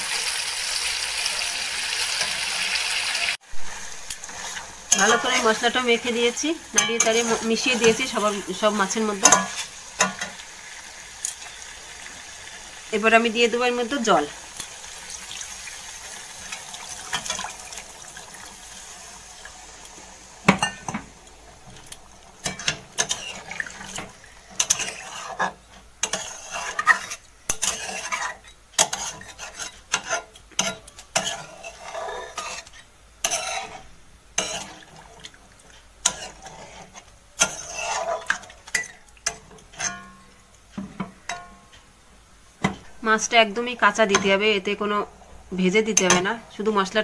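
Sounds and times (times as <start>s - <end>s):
metal spatula scraping pan: 4.0s - 10.4s, 22.4s - 35.2s, 36.0s - 40.2s.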